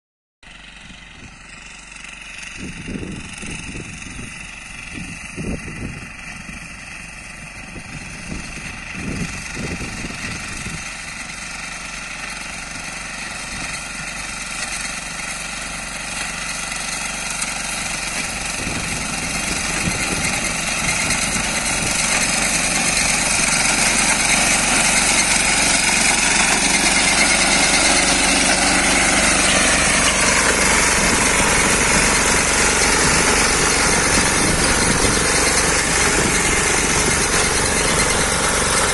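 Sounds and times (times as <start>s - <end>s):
diesel engine running: 0.5s - 38.9s.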